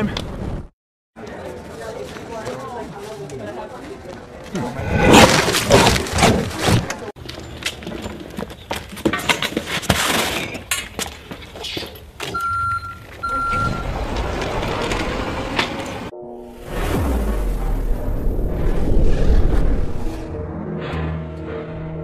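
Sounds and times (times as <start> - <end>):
hand truck and boxes rattling: 6.0 - 16.1.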